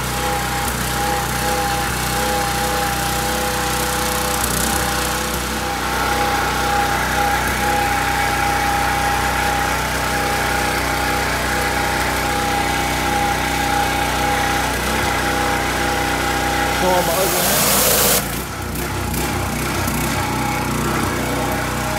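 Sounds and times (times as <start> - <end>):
pressure washer engine running: 0.0 - 21.9.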